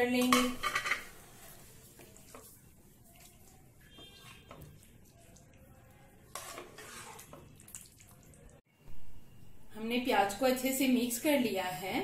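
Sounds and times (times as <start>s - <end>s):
spatula scraping frying pan: 6.2s - 7.5s.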